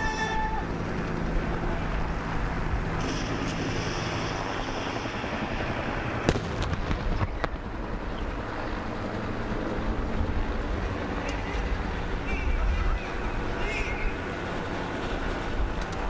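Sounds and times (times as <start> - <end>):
vehicle engines rumbling: 0.0 - 16.0
gunfire cracks: 6.2 - 7.6.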